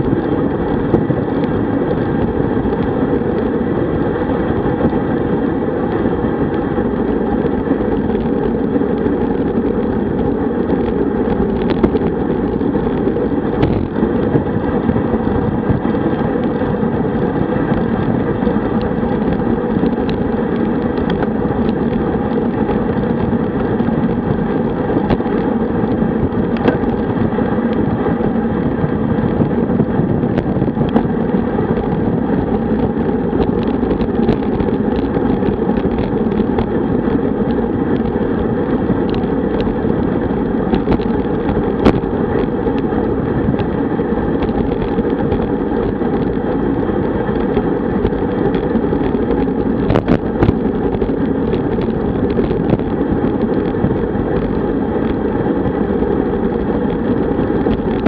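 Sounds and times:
tyre and road noise: 0.0s - 58.0s
wind rush on microphone: 0.0s - 58.0s.

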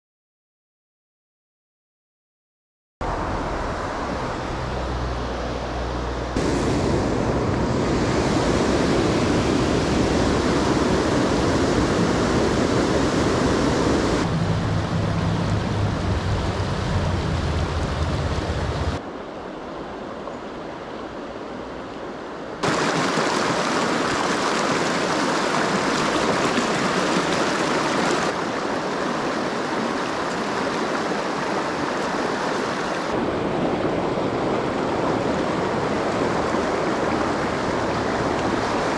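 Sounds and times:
river rushing over stones: 6.4s - 19.3s, 22.6s - 38.9s.

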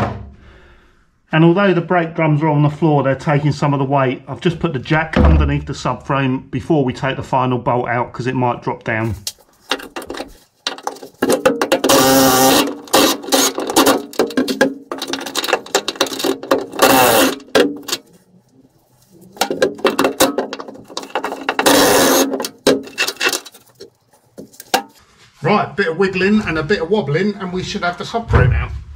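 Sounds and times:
impact wrench bursts: 11.7s - 14.4s, 16.1s - 18.0s.

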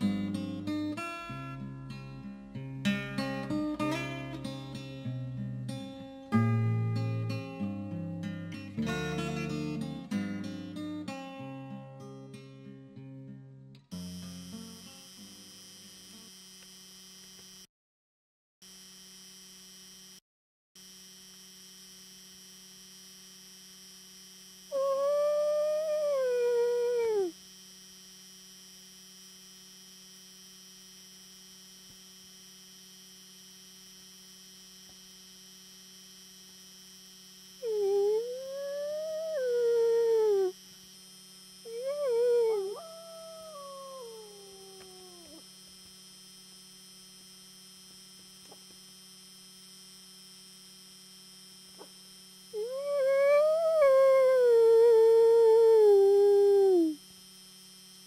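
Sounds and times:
person imitating wolf howl: 24.7s - 27.3s, 37.6s - 40.5s, 41.7s - 45.4s, 52.6s - 57.0s.

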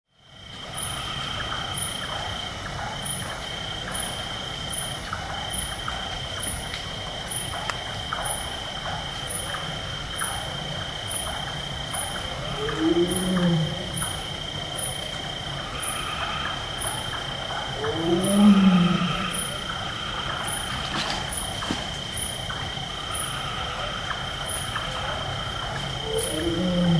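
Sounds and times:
tiger roaring: 12.3s - 14.2s, 16.2s - 20.5s, 25.6s - 26.9s.

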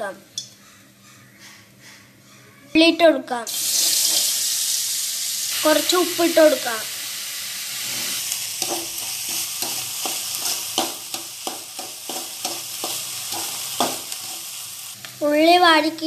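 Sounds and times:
onions sizzling in oil: 3.5s - 16.0s.

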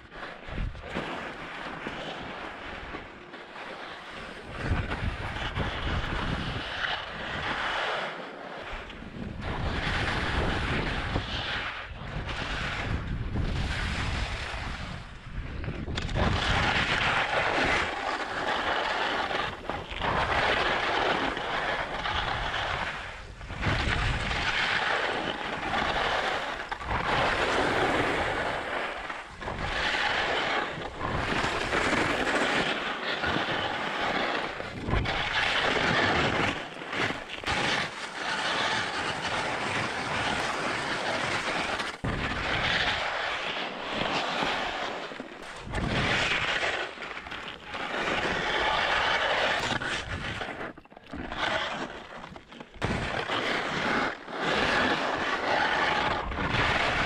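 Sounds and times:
skis scraping icy snow: 0.0s - 57.0s
wind rumble on microphone: 0.0s - 57.0s.

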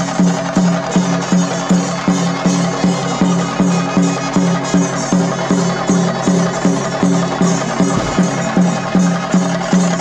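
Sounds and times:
percussion beat: 0.0s - 10.0s
held low note: 2.8s - 9.6s.

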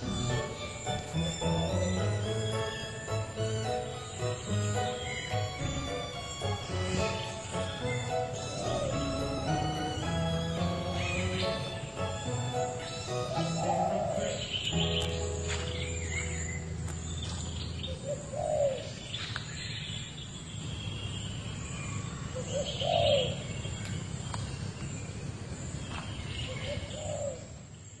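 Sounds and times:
dove cooing: 4.6s - 15.2s, 17.9s - 19.1s, 22.4s - 23.4s, 26.7s - 27.5s.

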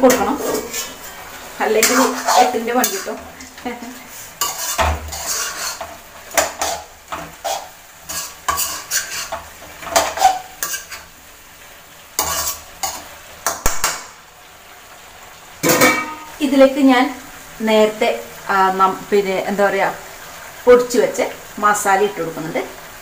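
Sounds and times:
metal spatula scraping metal pan: 0.0s - 11.1s, 12.2s - 13.6s.

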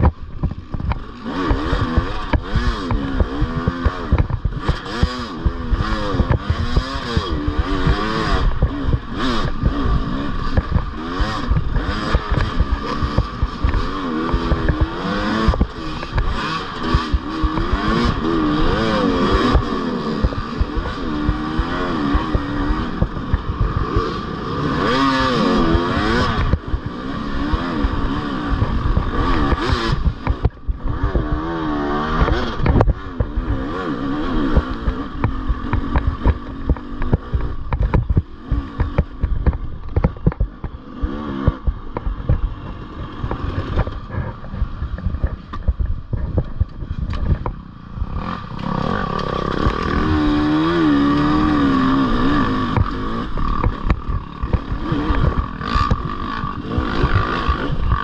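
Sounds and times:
motorcycle engine revving: 0.0s - 58.0s
knocks and clatter: 24.8s - 33.7s, 34.3s - 58.0s.

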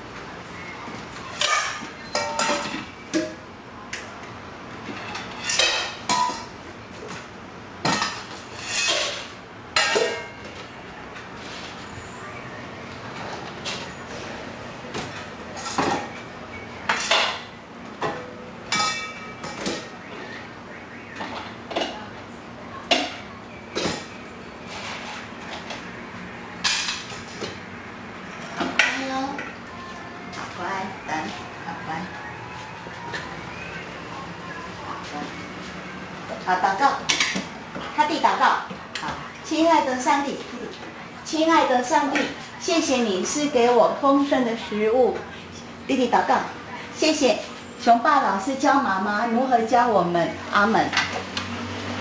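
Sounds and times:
dishes clattering and clinking: 1.2s - 3.4s, 4.8s - 7.2s, 7.8s - 10.7s, 14.9s - 16.2s, 16.9s - 19.9s, 22.8s - 25.8s, 26.6s - 27.6s, 37.0s - 38.0s.

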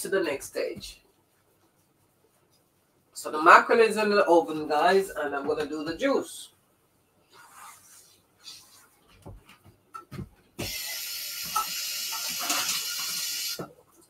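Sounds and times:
tap water running: 10.6s - 13.7s.

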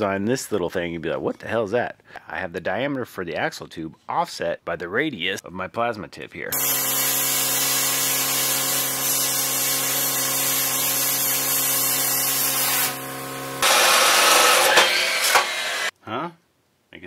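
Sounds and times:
plasma cutter hissing: 6.6s - 15.9s.

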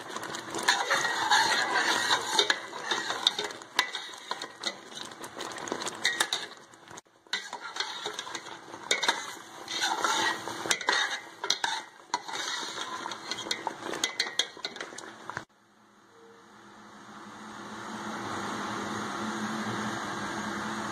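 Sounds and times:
spoon scraping a steel pot: 0.2s - 6.6s, 7.3s - 15.1s.

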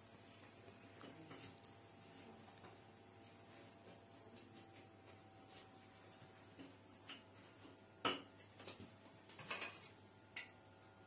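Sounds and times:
utensil clinking on dishes: 8.1s - 10.6s.

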